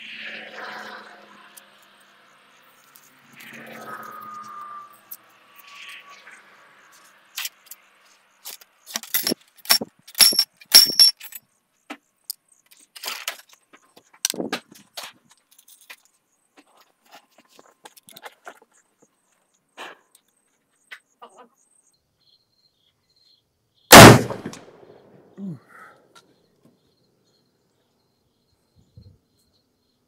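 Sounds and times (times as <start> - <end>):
ramrod clinking against rifle barrel: 9.0 - 11.4.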